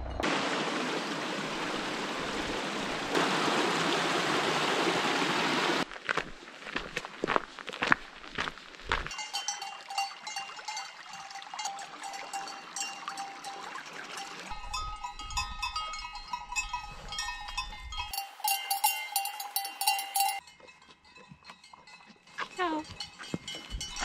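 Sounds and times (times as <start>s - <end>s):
cow bells clanking: 9.1s - 24.0s.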